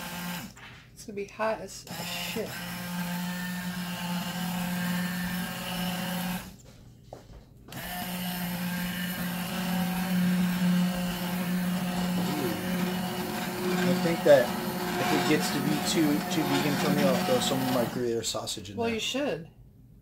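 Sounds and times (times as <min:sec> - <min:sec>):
immersion blender motor running: 0:00.0 - 0:00.6, 0:01.8 - 0:06.6, 0:07.7 - 0:18.2.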